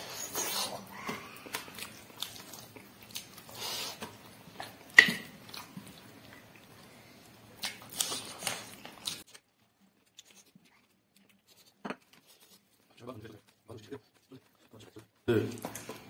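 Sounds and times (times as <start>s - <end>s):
person chewing and biting: 0.2s - 6.8s, 7.4s - 13.6s.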